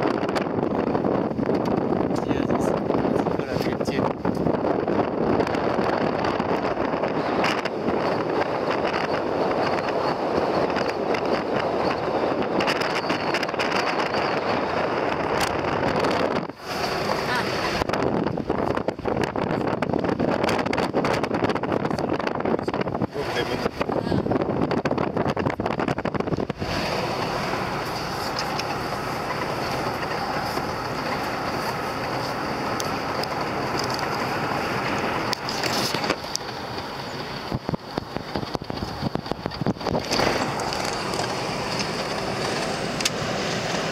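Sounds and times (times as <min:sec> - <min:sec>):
car road and wind noise: 0:00.0 - 0:43.9
wind buffeting microphone: 0:00.0 - 0:43.9
ticks and rattles: 0:27.2 - 0:43.2.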